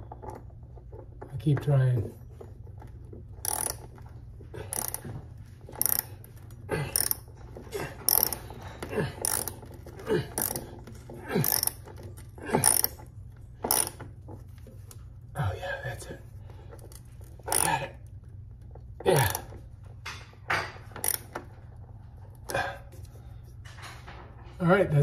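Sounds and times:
ratchet wrench clicking: 3.4 - 4.0, 4.6 - 5.0, 5.7 - 7.2, 8.1 - 8.4, 9.2 - 9.7, 10.4 - 10.6, 11.4 - 13.0, 13.7 - 14.0, 16.9 - 17.8, 21.0 - 21.3.

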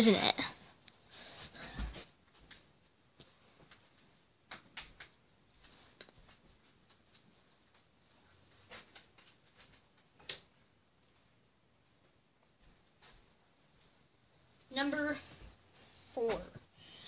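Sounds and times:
faint clicks and taps: 1.8 - 11.3.

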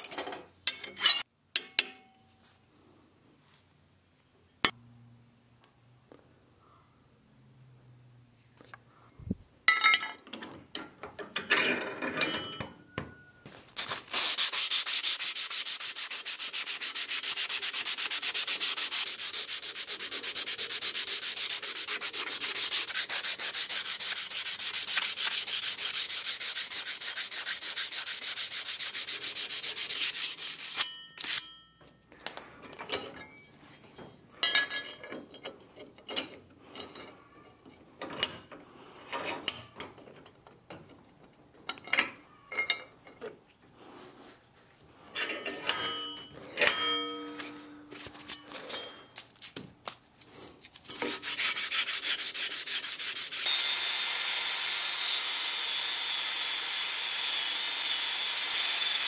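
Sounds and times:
handling scrapes and knocks: 0.0 - 2.6, 9.9 - 53.3
sandpaper rasping on steel: 13.8 - 31.4, 50.9 - 53.7.

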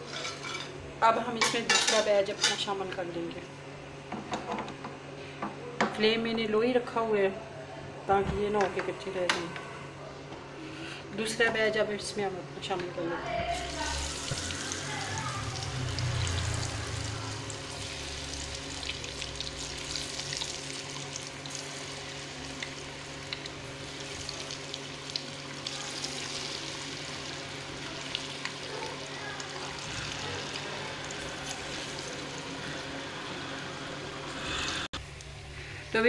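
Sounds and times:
potatoes deep-frying in oil: 13.5 - 34.0.

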